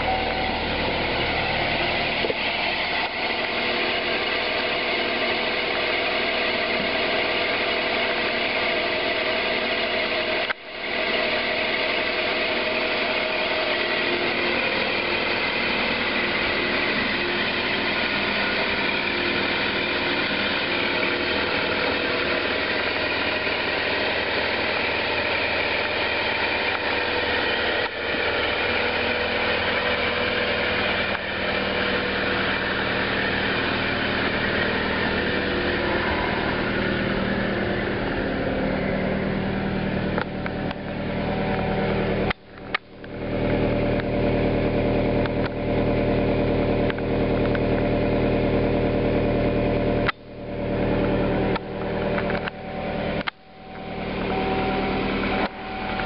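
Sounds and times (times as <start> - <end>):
car engine idling: 0.0 - 56.0
low exhaust hum: 0.0 - 56.0.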